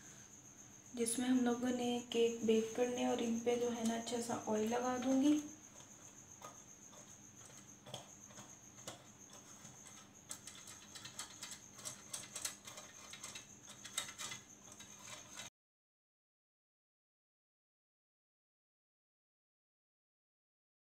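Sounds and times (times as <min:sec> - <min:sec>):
brush scratching metal pan: 0:04.6 - 0:15.5.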